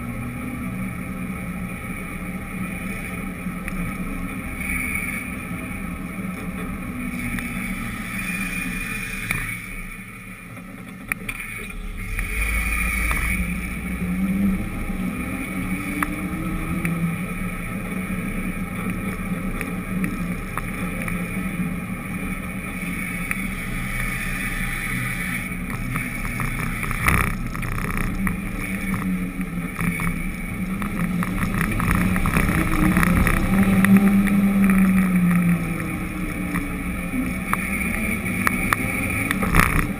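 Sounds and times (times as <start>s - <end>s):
vehicle engine and road rumble: 0.0s - 39.9s
small clicks and knocks: 25.6s - 39.9s.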